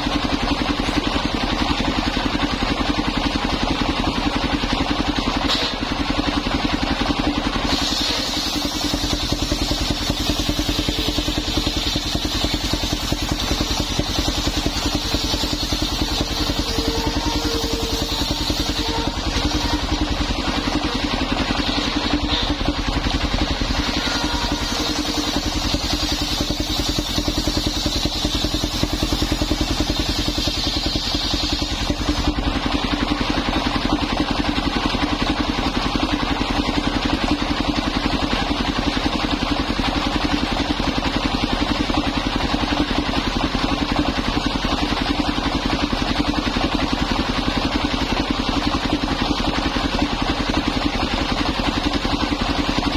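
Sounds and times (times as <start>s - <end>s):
stationary engine running: 0.0s - 52.9s
saw blade spinning: 6.8s - 33.4s.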